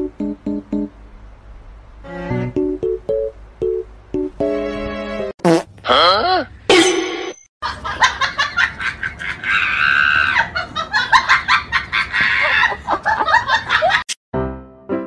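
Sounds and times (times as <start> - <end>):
person laughing: 7.6 - 14.0.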